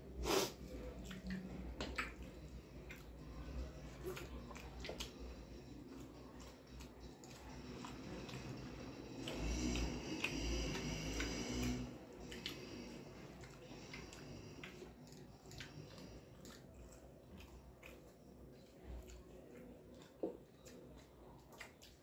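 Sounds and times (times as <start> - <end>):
person chewing food: 0.0 - 22.0
fingers squishing food on plate: 0.4 - 22.0.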